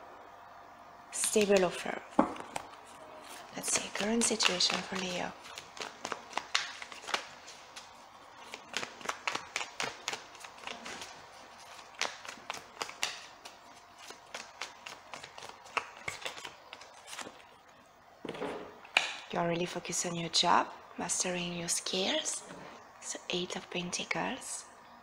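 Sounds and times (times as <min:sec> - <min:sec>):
cards being shuffled: 0:01.2 - 0:17.6.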